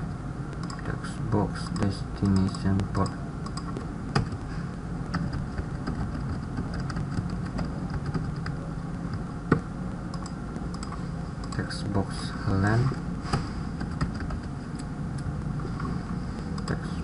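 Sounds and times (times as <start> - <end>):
steady low hum: 0.0 - 17.0
keyboard and mouse clicks: 0.6 - 0.8, 1.6 - 4.4, 5.1 - 11.6, 16.5 - 16.8.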